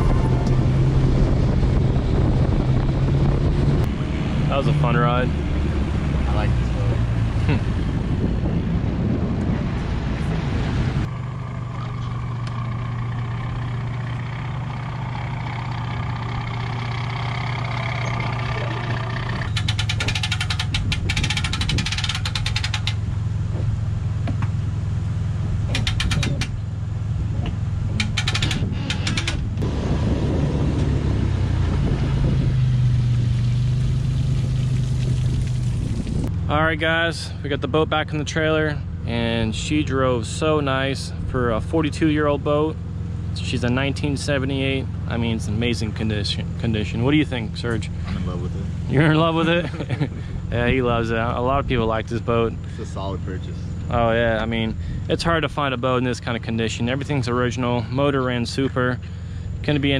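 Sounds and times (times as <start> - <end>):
pickup truck engine idling: 11.1 - 29.6
rapid clicking bursts: 19.5 - 23.0.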